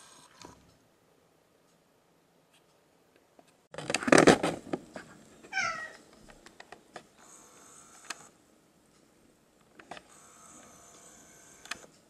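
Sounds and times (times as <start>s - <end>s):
cat meowing: 5.5s - 6.0s.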